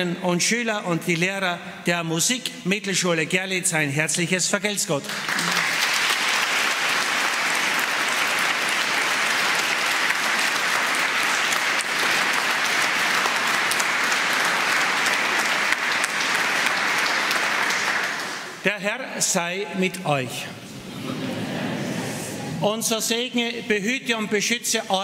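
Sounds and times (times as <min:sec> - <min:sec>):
crowd applauding: 0:05.0 - 0:18.6.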